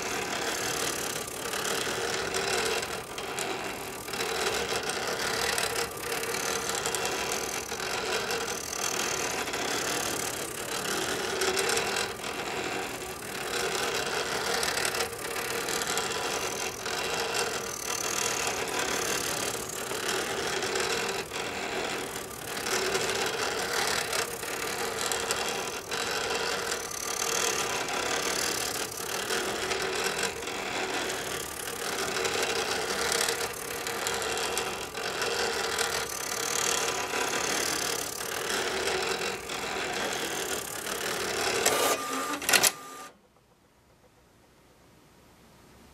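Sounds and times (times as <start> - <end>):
pen plotter motor whir: 0.0 - 43.2
plotter short clicks: 39.9 - 43.1.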